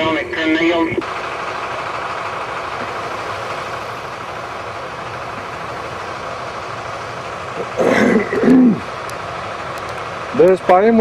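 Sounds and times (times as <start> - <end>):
combine harvester engine: 0.0 - 11.0
faint steady whine: 0.0 - 11.0
tractor engine running: 0.0 - 11.0.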